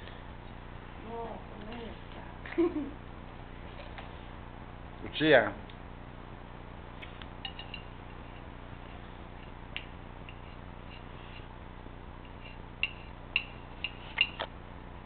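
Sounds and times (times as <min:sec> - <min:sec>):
fork clinking against plate: 0:07.4 - 0:07.9.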